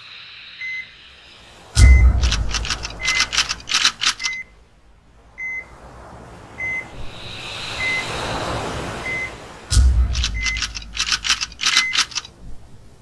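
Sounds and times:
rising noise swell: 0:00.0 - 0:11.6
short electronic beeps: 0:00.6 - 0:00.9, 0:01.8 - 0:03.6, 0:04.2 - 0:04.5, 0:09.0 - 0:09.4, 0:10.1 - 0:10.9
rapid typewriter-like clicking: 0:02.2 - 0:04.4, 0:10.2 - 0:12.3.

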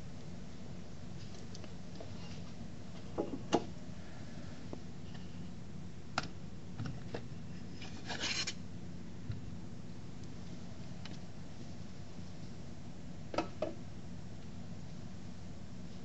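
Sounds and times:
steady low hum: 0:00.0 - 0:16.0
metal scrape: 0:07.8 - 0:08.6.

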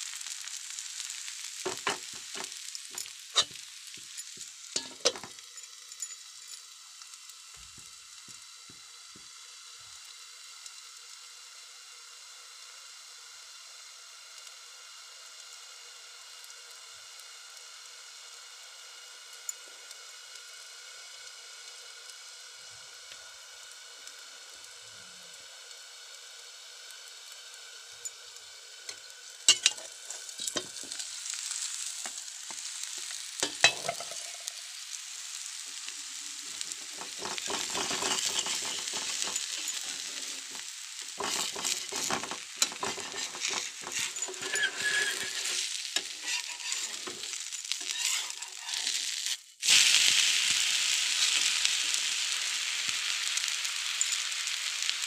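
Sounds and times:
pancake sizzling on a pan: 0:00.0 - 0:55.0
utensil clicking on a pan: 0:28.9 - 0:31.0, 0:33.4 - 0:34.6, 0:37.0 - 0:40.1, 0:41.2 - 0:48.8.

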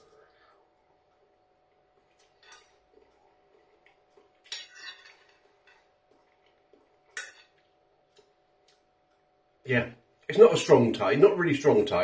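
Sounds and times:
fork scraping on plate: 0:04.5 - 0:05.8.

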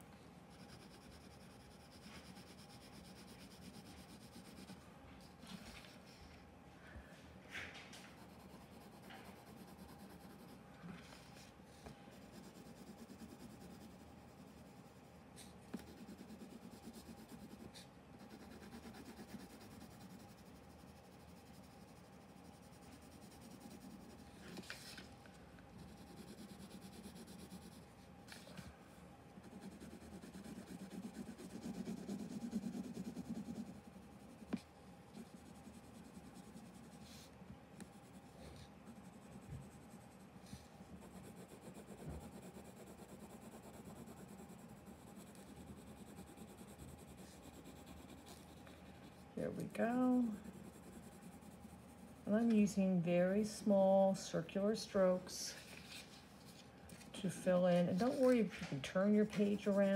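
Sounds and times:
faint steady hum: 0:00.0 - 0:59.9
pencil scratching on paper: 0:00.5 - 0:06.1, 0:08.0 - 0:25.0, 0:25.8 - 0:28.5, 0:29.4 - 0:52.7, 0:57.2 - 0:59.9.

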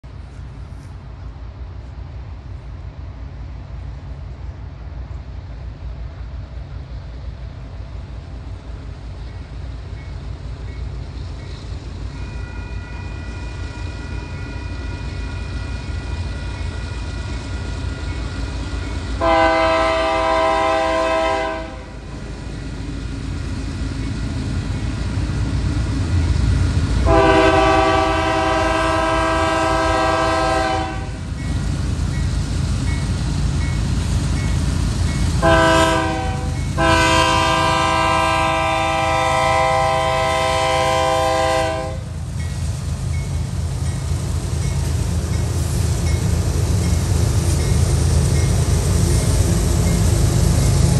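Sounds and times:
diesel locomotive engine rumble: 0:00.0 - 0:50.9
train air horn blasts: 0:12.2 - 0:17.9, 0:19.2 - 0:22.0, 0:27.0 - 0:31.2, 0:35.4 - 0:42.0.

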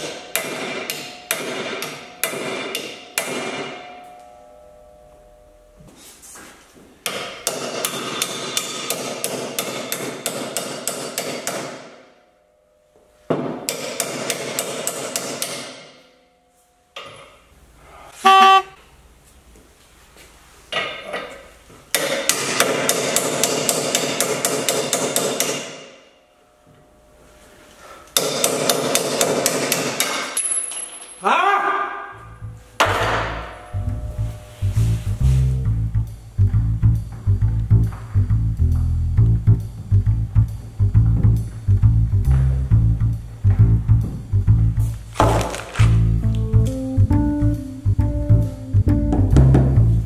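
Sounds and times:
short loud ringing tone: 0:18.2 - 0:18.8.

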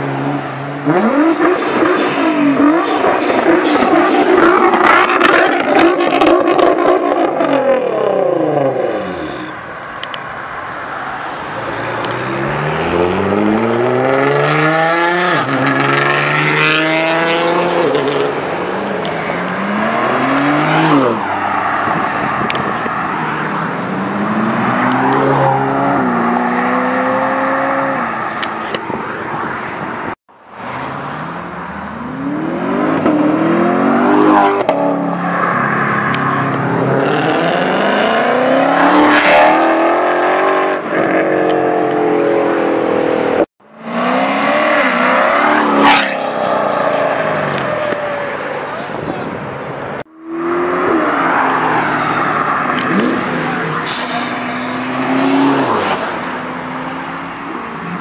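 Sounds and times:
sports car engines revving: 0:00.0 - 0:58.0
car passing by: 0:51.2 - 0:57.4.

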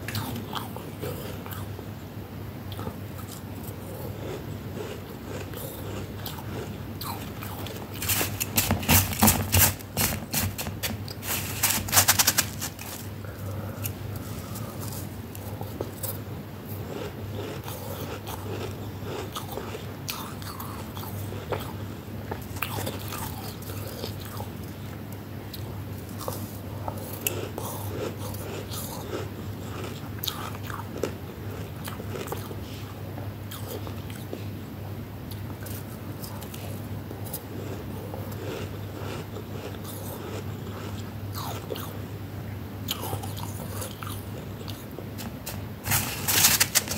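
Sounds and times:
low steady hum: 0:00.0 - 0:46.9
frost crackling: 0:07.0 - 0:13.1, 0:45.4 - 0:46.9
frost being bitten and chewed: 0:37.3 - 0:41.9.

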